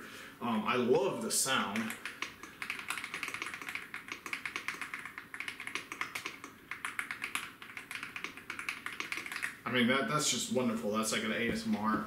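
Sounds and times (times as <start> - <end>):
mechanical keyboard typing: 1.6 - 9.6.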